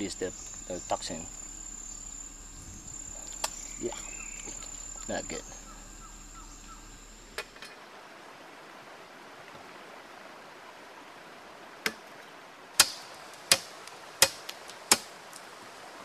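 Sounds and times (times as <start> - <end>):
steady hiss: 0.0 - 16.0
machete chopping wood: 12.8 - 15.1.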